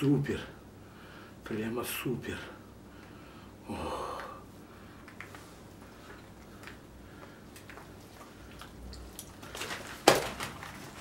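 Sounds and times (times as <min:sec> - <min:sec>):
plastic bag crinkling: 0:07.6 - 0:11.0.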